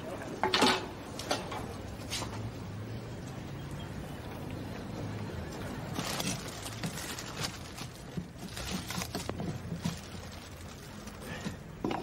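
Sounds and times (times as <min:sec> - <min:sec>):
objects knocking and rustling: 0:00.4 - 0:02.5, 0:05.9 - 0:12.0.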